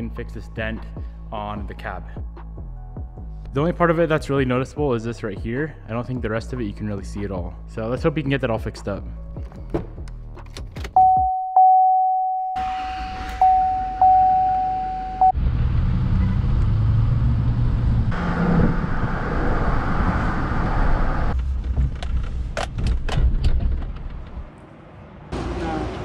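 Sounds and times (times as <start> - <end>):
vehicle warning chime: 11.0 - 15.4.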